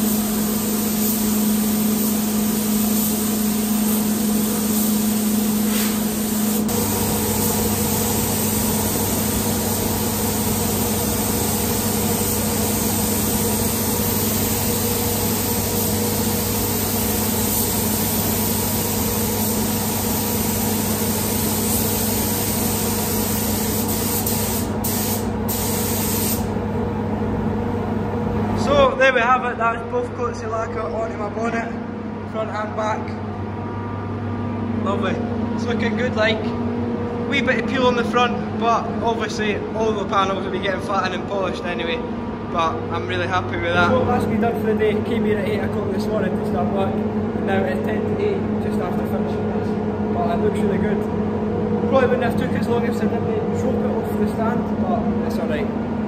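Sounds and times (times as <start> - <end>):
spray gun hissing: 0.0 - 26.5
steady low hum: 0.0 - 56.0.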